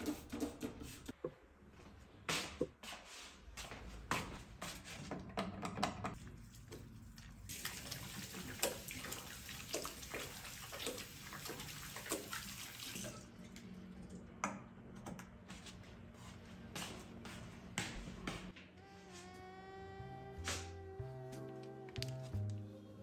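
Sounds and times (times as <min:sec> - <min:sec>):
running water splashing: 0:06.4 - 0:13.2.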